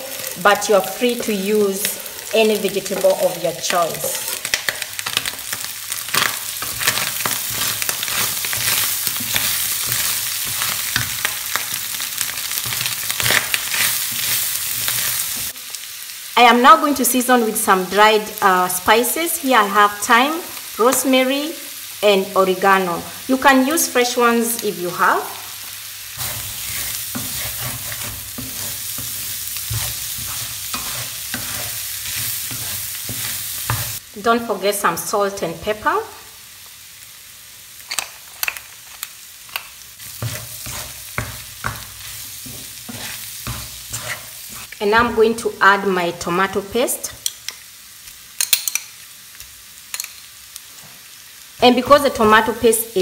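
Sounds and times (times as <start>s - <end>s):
meat sizzling in a frying pan: 0.0s - 53.0s
wooden spoon scraping a pan: 6.2s - 15.6s, 26.2s - 34.0s, 40.0s - 45.4s.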